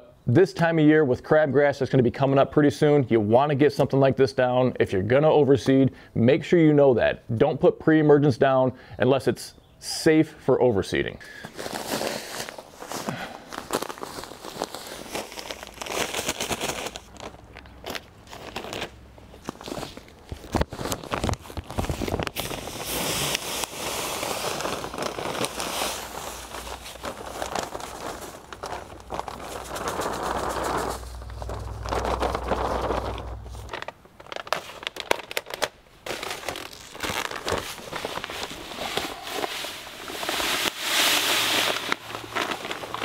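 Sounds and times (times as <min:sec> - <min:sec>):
bag crinkling and tearing: 0:11.4 - 0:43.0
granules pouring into plastic hopper: 0:21.9 - 0:33.7, 0:36.4 - 0:43.0.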